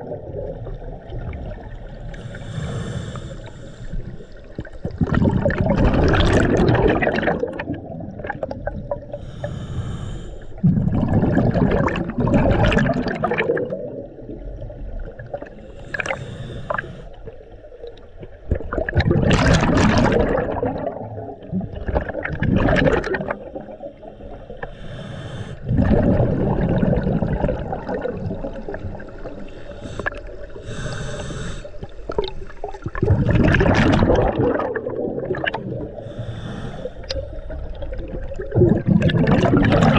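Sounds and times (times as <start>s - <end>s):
exhaled bubbles underwater: 0.0s - 39.9s
regulator hiss: 29.6s - 31.8s.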